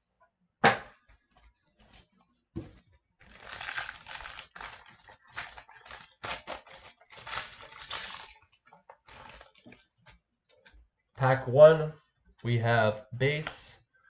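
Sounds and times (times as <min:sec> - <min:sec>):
foil pack crinkling and tearing: 0:03.2 - 0:09.7.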